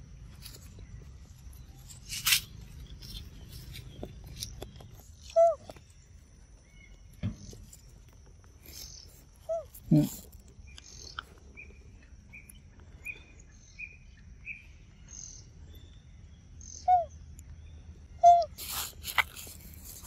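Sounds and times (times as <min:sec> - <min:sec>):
high insect hum: 0:00.0 - 0:20.0.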